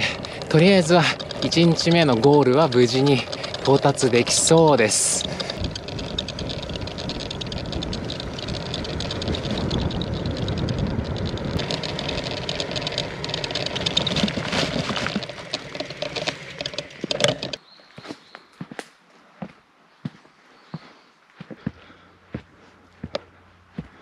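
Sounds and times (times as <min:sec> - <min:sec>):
bicycle tyres rumbling on pavement: 0:00.0 - 0:17.6
bike rattling: 0:00.0 - 0:17.7.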